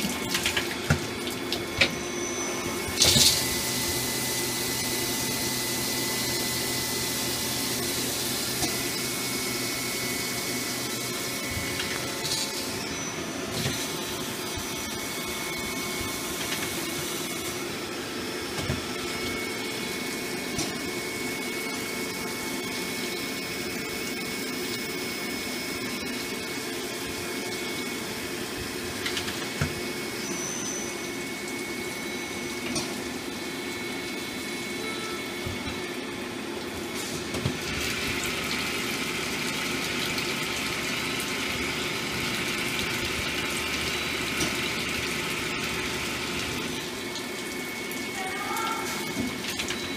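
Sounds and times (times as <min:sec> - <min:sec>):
lathe humming and whining: 0:00.0 - 0:48.2
coolant splashing: 0:37.5 - 0:48.0.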